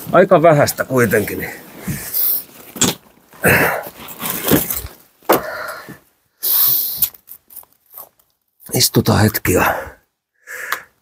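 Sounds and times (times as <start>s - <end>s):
clothing rustle: 0.0s - 5.3s
person breathing: 5.3s - 7.0s, 9.7s - 11.0s.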